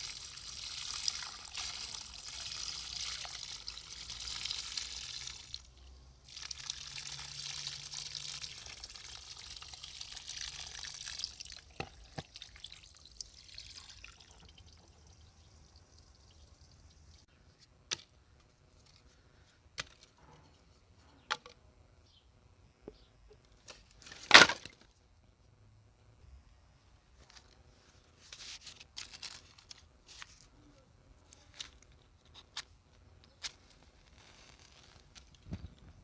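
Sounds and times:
water pouring from hose: 0.0s - 17.3s.

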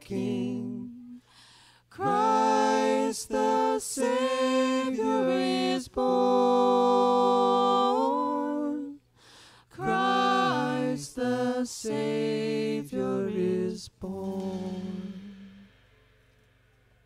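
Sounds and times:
person singing: 0.0s - 1.2s, 9.8s - 15.7s
breaths: 1.2s - 1.9s, 9.1s - 9.8s.

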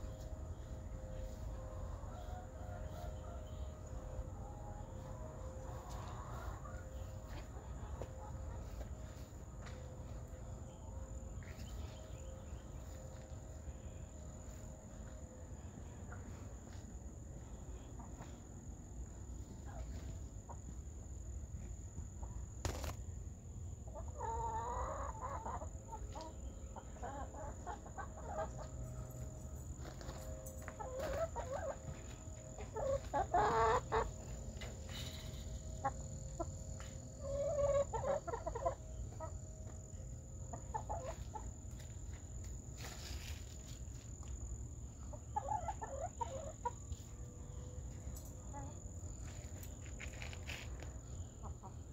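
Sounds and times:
hens clucking: 0.0s - 10.5s, 23.9s - 29.1s, 30.0s - 43.5s, 45.0s - 47.1s.

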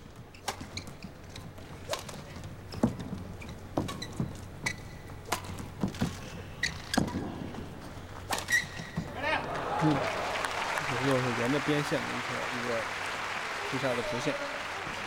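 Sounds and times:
shoes squeaking on court: 0.0s - 9.2s.

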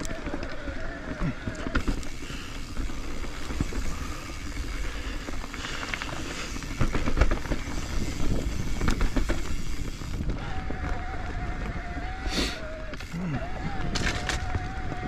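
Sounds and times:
bike clicking and rattling: 0.0s - 15.0s
bike tyres rumbling on dirt: 0.0s - 15.0s
heavy knocks of bike: 5.8s - 11.6s.

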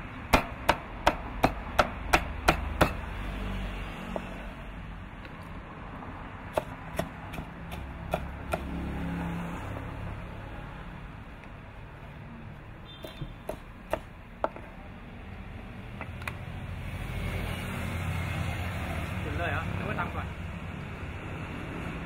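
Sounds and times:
cleaver chopping on wooden board: 0.3s - 3.1s, 6.5s - 8.8s, 13.0s - 14.6s.

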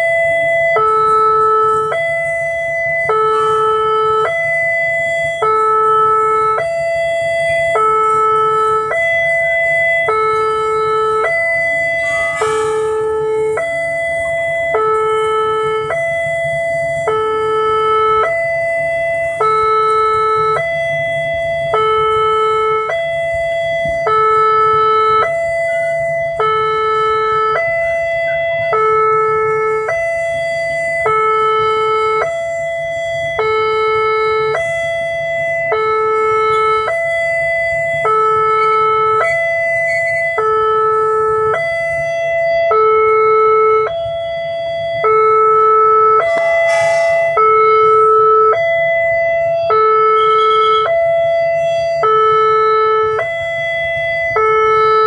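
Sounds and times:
level crossing two-tone alarm: 0.0s - 55.0s
train rumbling over crossing: 7.2s - 24.0s, 44.0s - 49.4s.

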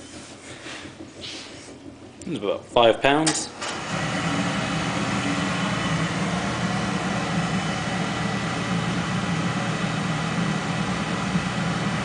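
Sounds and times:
low hum: 3.6s - 12.0s.

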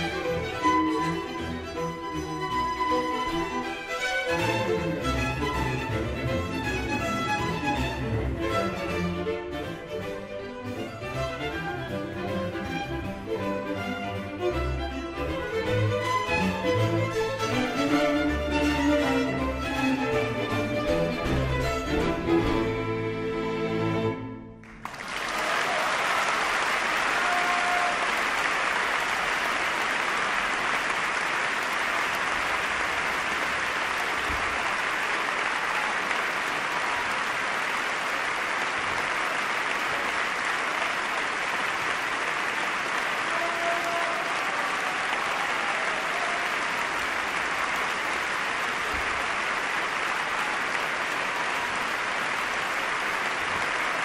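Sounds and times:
audience applause: 24.6s - 54.0s.

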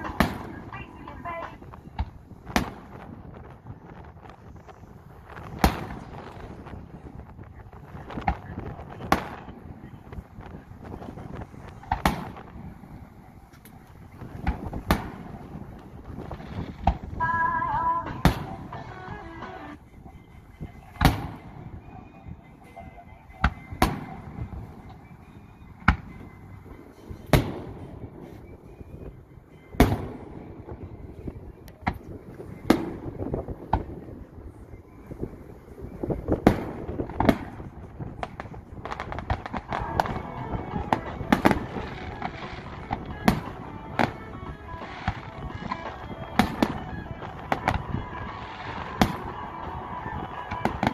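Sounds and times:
firework shells booming: 0.0s - 3.5s, 10.9s - 13.0s, 13.6s - 17.2s, 36.3s - 50.9s
firework crackling: 0.0s - 19.8s, 29.8s - 50.9s.

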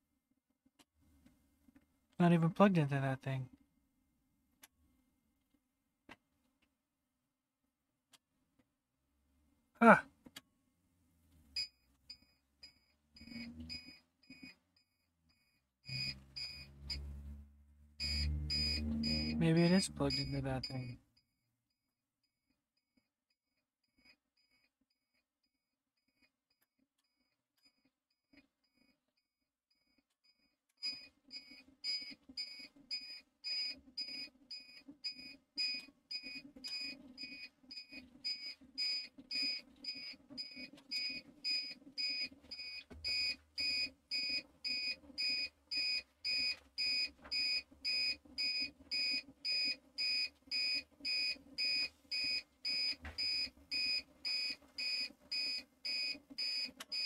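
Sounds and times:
two-tone alarm beeping: 11.6s - 14.6s, 15.4s - 21.0s, 30.8s - 57.0s.

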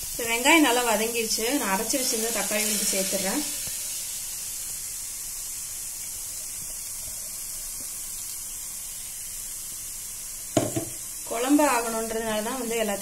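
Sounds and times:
sauce sizzling in a pan: 0.0s - 13.0s
sharp knocks: 10.6s - 11.0s.

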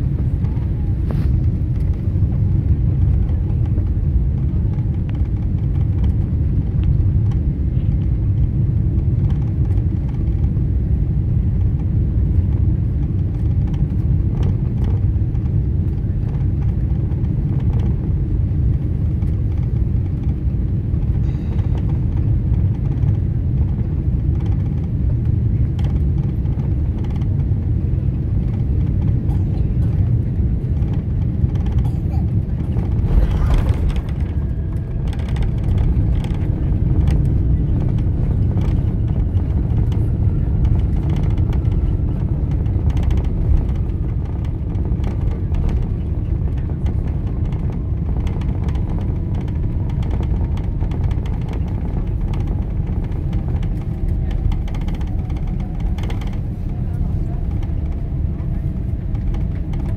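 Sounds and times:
jet engines low rumble: 0.0s - 59.9s
rushing air: 32.6s - 37.1s.

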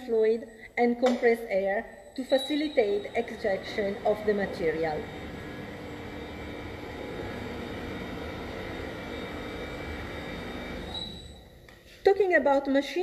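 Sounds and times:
faint high whine: 0.0s - 11.6s
saw motor hum: 2.3s - 11.5s.

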